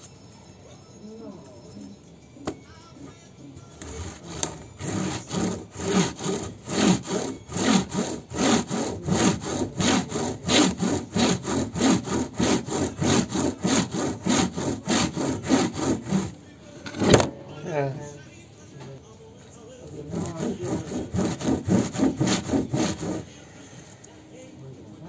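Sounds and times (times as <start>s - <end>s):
bamboo mat rubbing and clattering: 3.8s - 16.3s, 20.1s - 23.3s.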